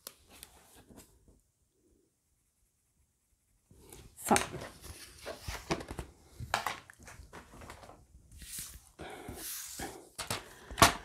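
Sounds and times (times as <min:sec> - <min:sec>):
paper rustling and sliding: 0:04.6 - 0:11.0.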